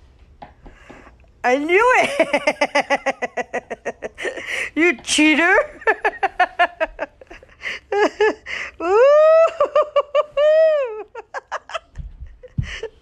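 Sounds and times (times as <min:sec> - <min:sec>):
person laughing hard: 0:02.0 - 0:04.8, 0:05.8 - 0:13.0.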